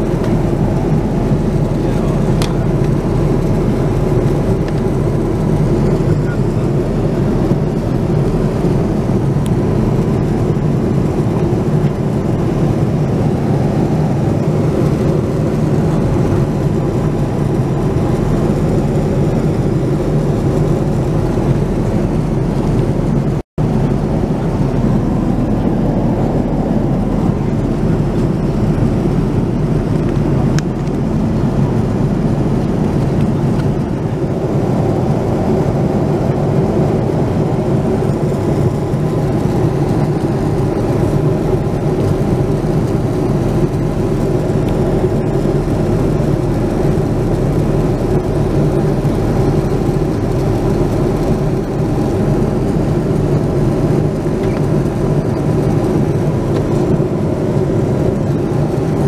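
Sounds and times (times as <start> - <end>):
airliner cabin noise: 0.0 - 59.0.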